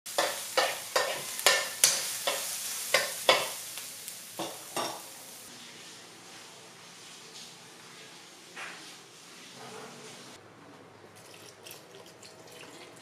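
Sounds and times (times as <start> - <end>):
spatula stirring sizzle bursts: 0.1 - 5.6
food frying in oil: 0.1 - 5.8.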